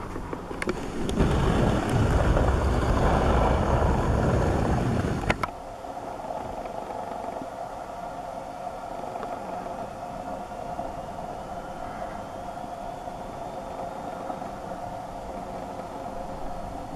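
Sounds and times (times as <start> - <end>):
faint hum: 0.0 - 16.9
camera handling rumble: 3.9 - 5.6.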